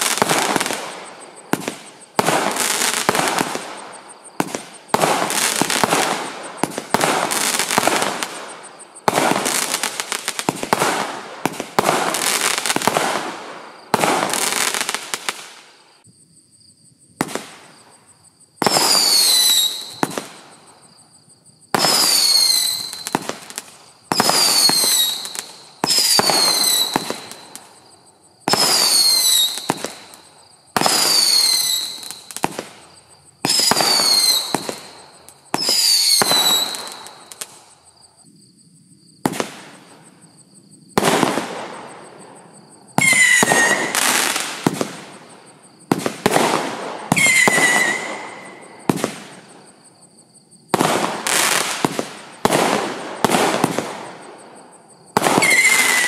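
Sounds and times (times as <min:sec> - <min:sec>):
firework bangs: 0:00.0 - 0:15.7, 0:17.2 - 0:17.9, 0:18.6 - 0:20.6, 0:21.7 - 0:27.8, 0:28.4 - 0:37.7, 0:39.2 - 0:40.1, 0:41.0 - 0:49.7, 0:50.7 - 0:56.0
fireworks crackling volleys: 0:00.0 - 0:16.0, 0:17.2 - 0:18.0, 0:18.6 - 0:20.8, 0:21.7 - 0:37.8, 0:39.2 - 0:40.1, 0:41.0 - 0:49.8, 0:50.7 - 0:56.0
falling high whistle: 0:43.0 - 0:44.1.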